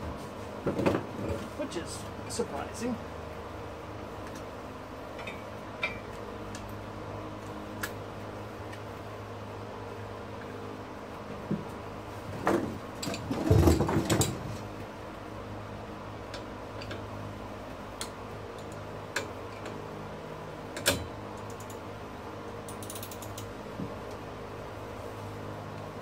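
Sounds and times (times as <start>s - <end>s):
steady low hum: 0.0s - 26.0s
ratchet clicks: 22.7s - 23.5s.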